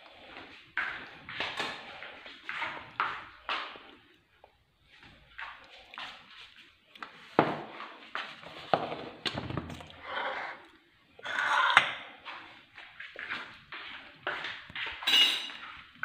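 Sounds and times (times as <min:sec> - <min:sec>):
baking tray scraping: 0:09.9 - 0:10.6, 0:11.2 - 0:11.8.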